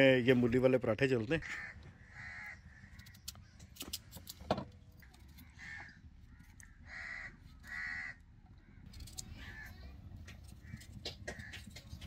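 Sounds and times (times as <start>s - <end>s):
crows cawing: 1.4s - 3.3s, 5.3s - 9.9s, 10.5s - 12.0s
knife clicks and scrapes: 8.9s - 12.0s.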